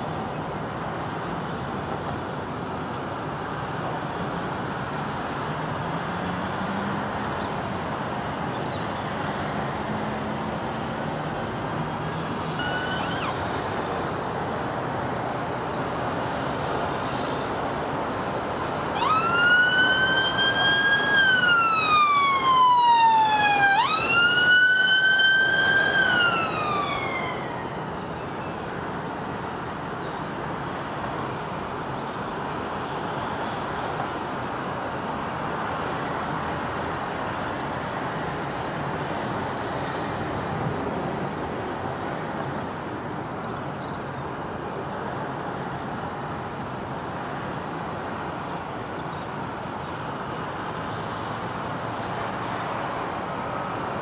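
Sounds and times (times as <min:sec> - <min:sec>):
road traffic noise: 0:00.0 - 0:54.0
emergency siren wailing: 0:12.5 - 0:13.6, 0:18.6 - 0:28.1.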